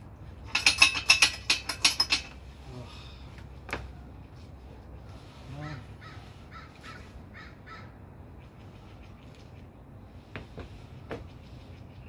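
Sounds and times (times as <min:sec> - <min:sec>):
metallic clinks and rattling: 0:00.4 - 0:02.4.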